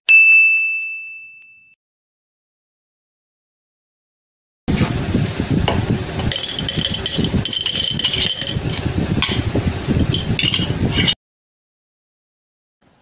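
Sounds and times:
bright ringing: 6.3s - 8.6s
glass jar rattling: 6.3s - 8.7s, 10.0s - 10.7s.

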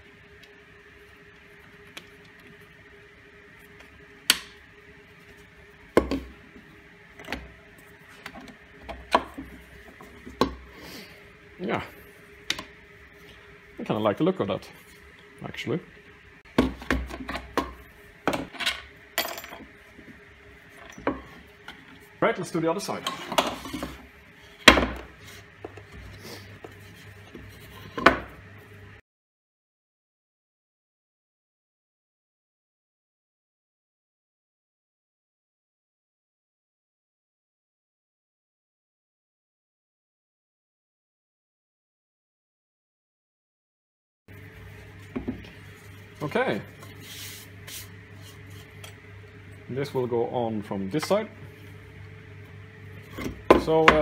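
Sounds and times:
parts knocking on a workbench: 16.6s - 18.6s, 24.7s - 25.1s.

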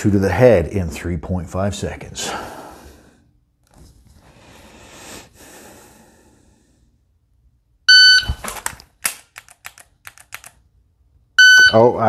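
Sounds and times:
long breath: 4.3s - 7.0s
shot timer beep: 7.9s - 8.4s, 11.4s - 11.9s.

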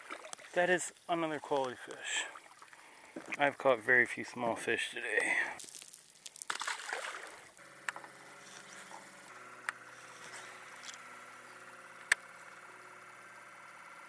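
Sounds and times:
splash in water: 6.4s - 7.5s
electric motor humming: 7.1s - 14.0s.

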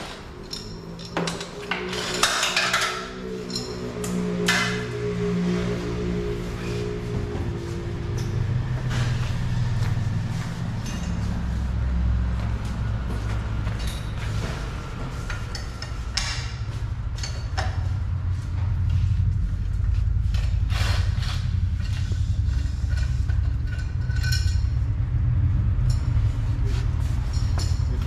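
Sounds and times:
metallic clinks and knocks: 0.0s - 4.8s, 20.3s - 24.9s, 27.2s - 28.0s
steady low rumble: 0.0s - 28.0s.

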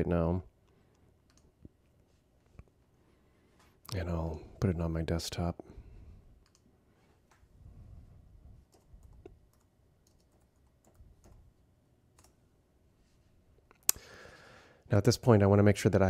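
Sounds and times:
keyboard typing: 8.6s - 12.4s.

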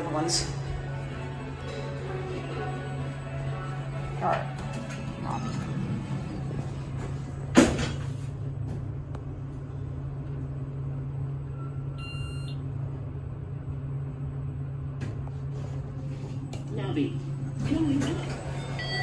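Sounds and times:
elevator hum: 0.0s - 19.0s
electronic elevator chime: 11.5s - 12.6s, 18.4s - 19.0s.

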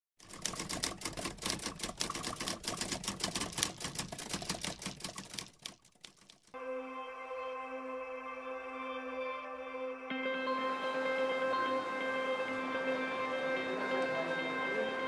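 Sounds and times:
rapid mechanical clicking: 0.2s - 6.6s
soft ambient music chord: 6.6s - 15.0s.

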